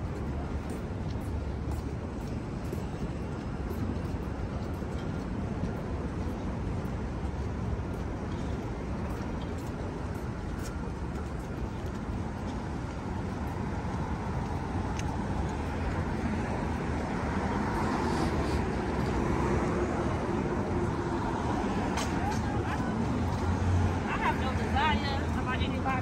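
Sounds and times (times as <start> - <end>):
rumble of passing traffic: 0.0 - 26.0.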